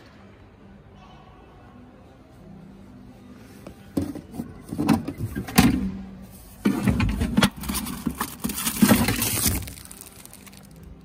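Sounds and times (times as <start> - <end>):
packaging rustling: 7.6 - 11.0.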